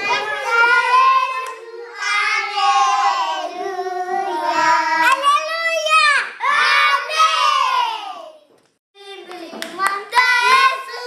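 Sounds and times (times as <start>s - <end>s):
children singing: 0.0s - 5.2s, 9.9s - 11.0s.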